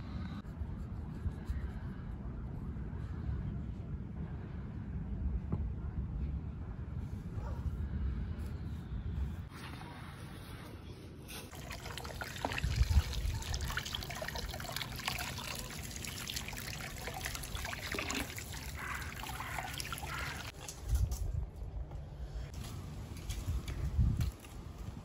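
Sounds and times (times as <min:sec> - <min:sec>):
water running from a tap: 0:11.5 - 0:20.5.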